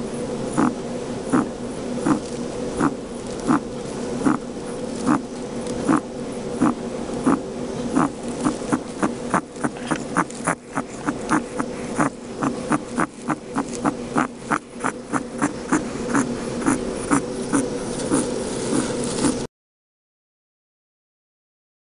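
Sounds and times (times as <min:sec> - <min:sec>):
guinea pig wheezing breaths: 0:00.6 - 0:03.6, 0:04.2 - 0:04.4, 0:05.0 - 0:05.2, 0:05.8 - 0:06.0, 0:06.6 - 0:19.5.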